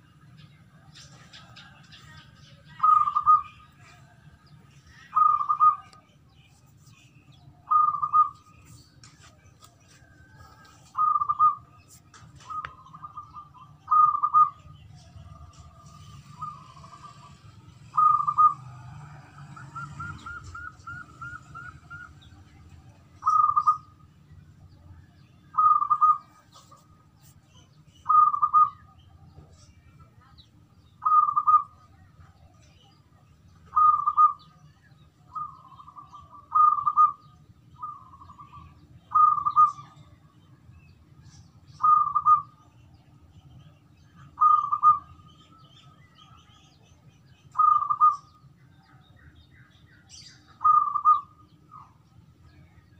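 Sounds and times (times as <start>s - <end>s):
dove cooing: 0.9s - 4.2s, 4.9s - 6.0s, 7.6s - 8.5s, 10.3s - 23.9s, 25.6s - 26.9s, 28.0s - 29.6s, 31.0s - 32.7s, 33.7s - 34.5s, 35.2s - 40.0s, 41.8s - 42.6s, 44.3s - 45.2s, 47.5s - 48.3s, 50.6s - 51.9s.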